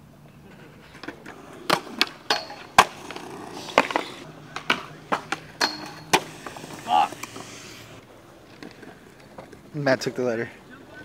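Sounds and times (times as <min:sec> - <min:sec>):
skateboard rolling on concrete: 0:00.0 - 0:11.0
skateboard clacks on metal rail: 0:01.7 - 0:02.9, 0:04.6 - 0:06.3.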